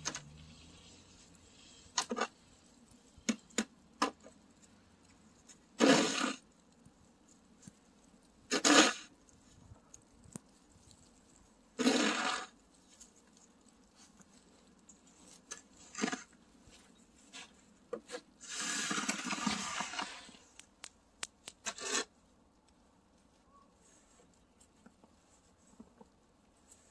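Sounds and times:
snow shovel scraping wet snow: 5.8 - 6.4, 8.5 - 9.1, 11.8 - 12.5, 15.5 - 16.3, 18.1 - 20.4, 21.6 - 22.1.

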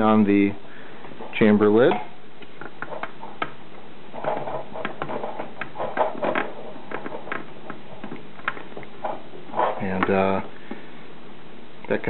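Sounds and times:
rubbing of plastic parts: 2.4 - 10.9.

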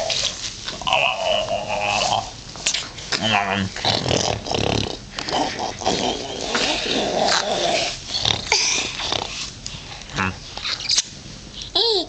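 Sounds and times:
man making growling noises: 0.8 - 2.4, 3.2 - 8.8.

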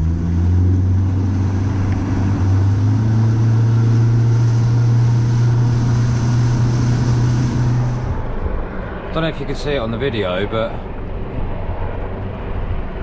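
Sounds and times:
boat motor running: 0.0 - 9.0.

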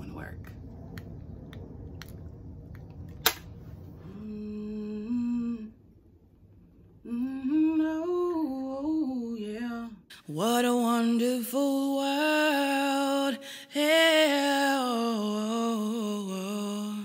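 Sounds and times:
sharp click: 3.1 - 3.5
woman humming: 4.0 - 5.8.

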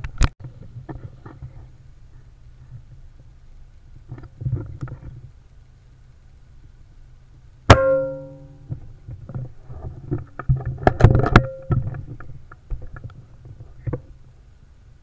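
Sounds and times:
air rifle shot ringing: 7.7 - 8.5.

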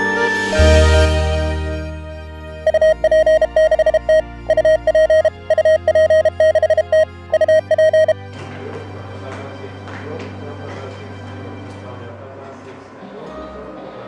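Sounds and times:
rapid morse code tone: 2.6 - 8.2.

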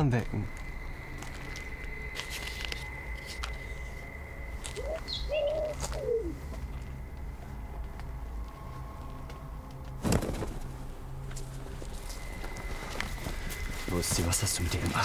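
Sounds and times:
pigeon cooing: 4.8 - 6.5.

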